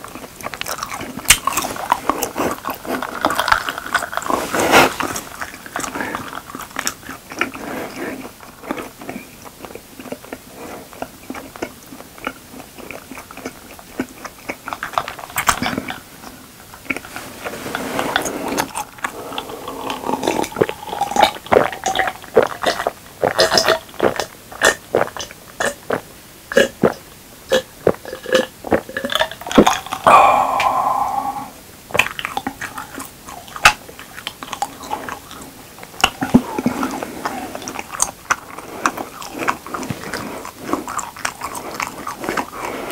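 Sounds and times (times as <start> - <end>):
soft chewing clicks: 0.0 - 17.3, 31.9 - 42.9
person gulping a drink: 16.9 - 32.9.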